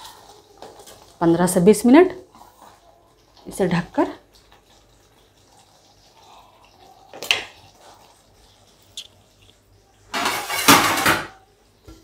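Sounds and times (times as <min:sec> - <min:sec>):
kitchenware clattering: 0:10.1 - 0:12.0.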